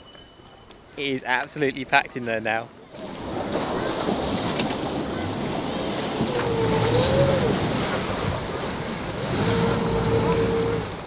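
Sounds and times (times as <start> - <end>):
speedboat engines running: 2.9 - 11.0
lapping water: 3.0 - 11.0
wind noise on microphone: 3.0 - 11.0.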